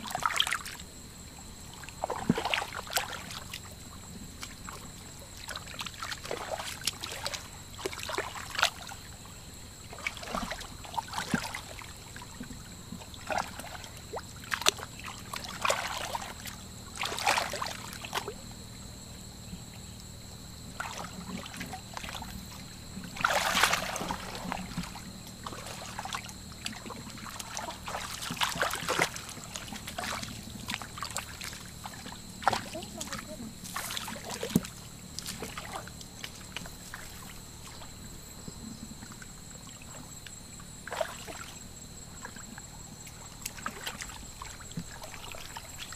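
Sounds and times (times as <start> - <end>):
hands splashing in muddy water: 23.1 - 37.9.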